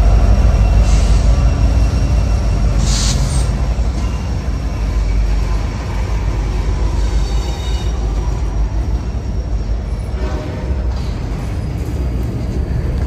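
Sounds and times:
train rumbling past: 0.0 - 13.0
faint wheel squeal: 0.5 - 12.2.

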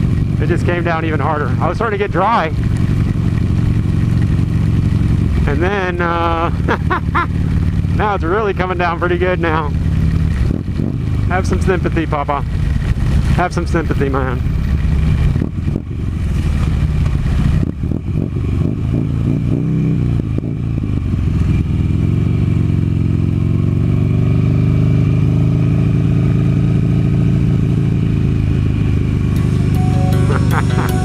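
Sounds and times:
motorcycle engine running: 0.0 - 31.0
music: 29.4 - 31.0.

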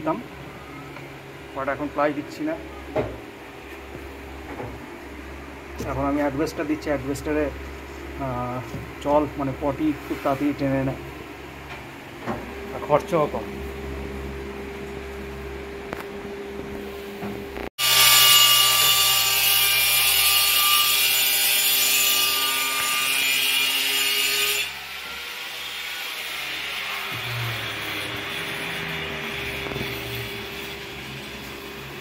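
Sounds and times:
power tool whining on wood: 17.8 - 32.0.

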